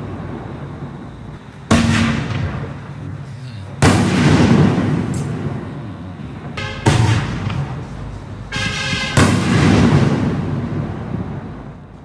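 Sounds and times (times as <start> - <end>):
firework shell bangs with echo: 1.7 - 3.0, 3.8 - 5.5, 6.6 - 7.9, 8.6 - 10.7.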